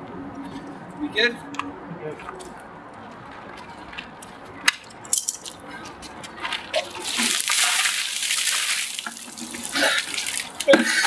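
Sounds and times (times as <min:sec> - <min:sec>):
water cascading and splashing: 0:06.8 - 0:11.0.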